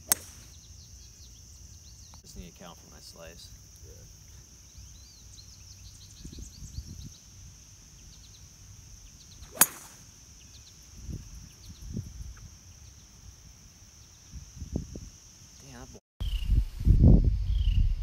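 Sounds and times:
golf club striking ball: 0.0 - 0.5, 9.5 - 10.1
high drone of insects: 0.0 - 16.4.

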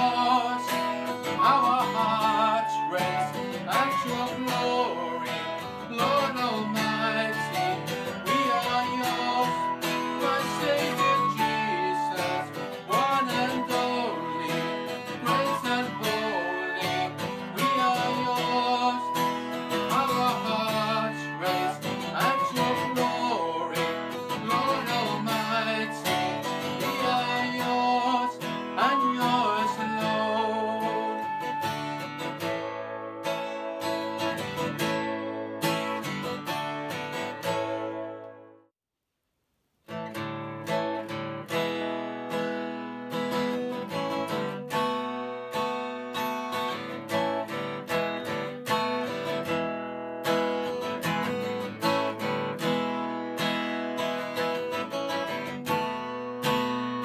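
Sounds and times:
flute: 0.0 - 36.1
strummed acoustic guitar: 0.0 - 38.6, 39.9 - 57.0.

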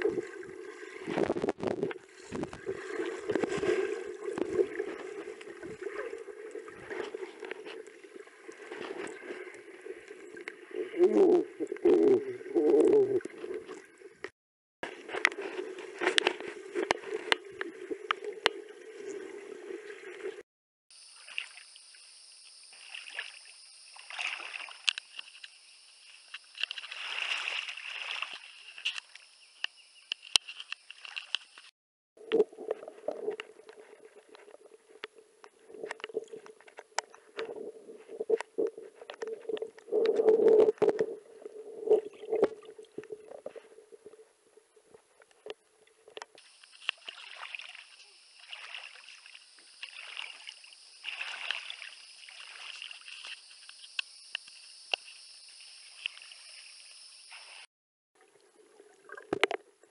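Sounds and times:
water sloshing and gurgling: 0.0 - 20.4, 22.6 - 29.4, 30.1 - 57.2, 58.2 - 59.9.

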